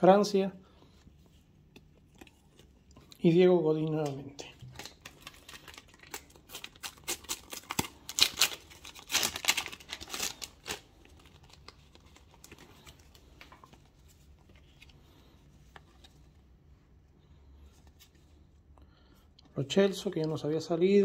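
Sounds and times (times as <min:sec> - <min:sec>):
sticker packets tearing and crinkling: 0:04.0 - 0:13.4.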